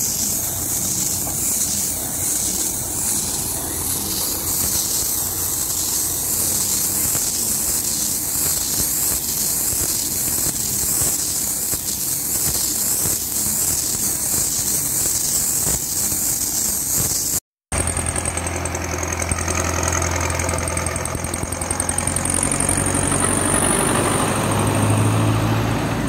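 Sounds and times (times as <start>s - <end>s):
steady high hiss: 0.0s - 17.4s
tractor engine running: 0.0s - 26.0s.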